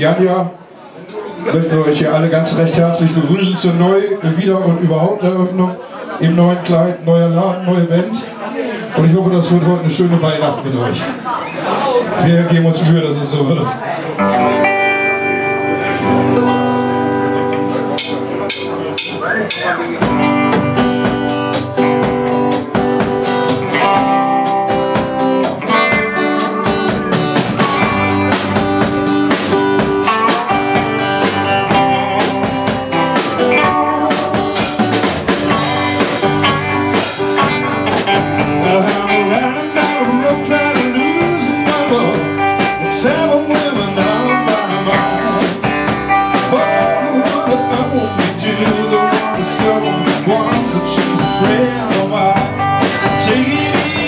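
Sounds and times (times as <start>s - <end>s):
rock band playing: 14.1s - 54.0s
steady drumbeat: 18.0s - 54.0s.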